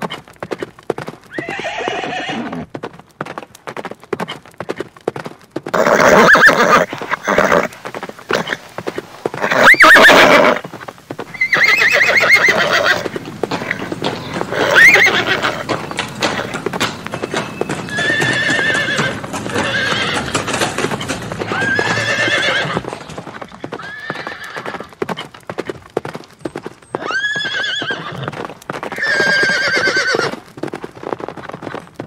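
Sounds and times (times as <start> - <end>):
galloping hoofbeats: 0.0 - 32.0
horses whinnying: 1.3 - 2.7, 5.7 - 25.0, 27.0 - 30.4.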